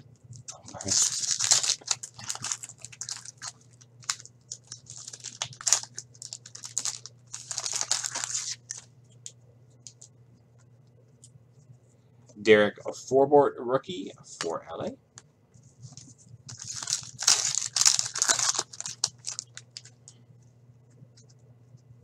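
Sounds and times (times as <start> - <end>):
wrapper crinkling and tearing: 0.4 - 8.9, 16.5 - 20.1.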